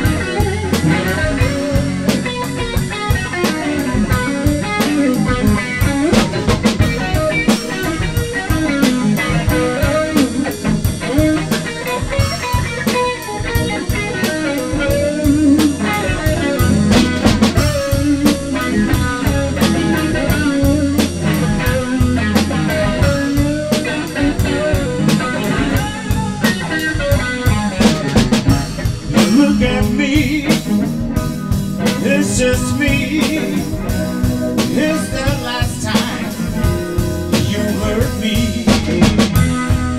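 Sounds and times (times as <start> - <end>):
blues band playing: 0.0 - 39.9
drum strikes: 0.0 - 39.9
electric guitar: 0.0 - 39.9.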